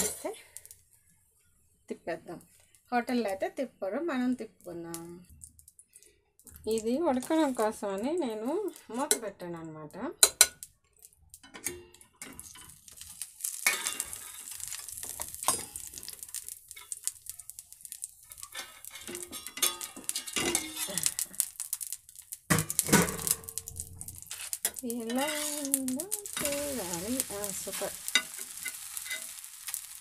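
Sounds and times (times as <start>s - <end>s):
batter sizzling in oil: 0.0s - 3.6s, 4.2s - 9.3s, 10.2s - 30.0s
steel lid clinking: 18.4s - 21.2s, 22.6s - 29.4s.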